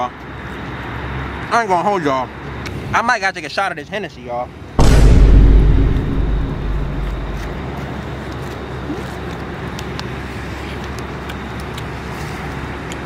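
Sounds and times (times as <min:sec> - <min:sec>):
road traffic noise: 0:00.0 - 0:04.8, 0:07.4 - 0:13.0.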